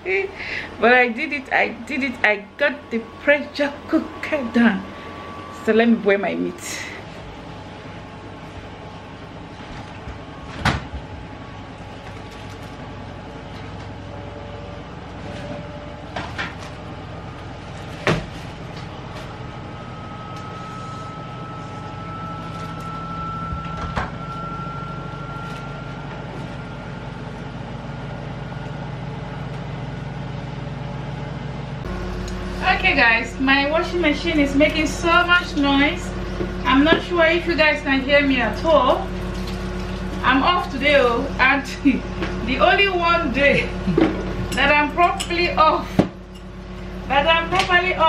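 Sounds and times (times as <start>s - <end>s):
washing machine humming: 0.0s - 48.0s
faint rising whine: 1.7s - 12.0s, 16.6s - 41.4s.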